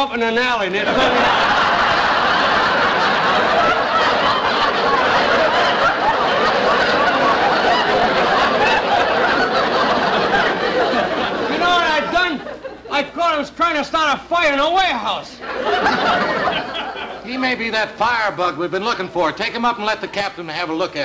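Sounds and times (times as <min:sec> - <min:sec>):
studio audience laughing: 0:00.7 - 0:13.1, 0:15.4 - 0:17.7.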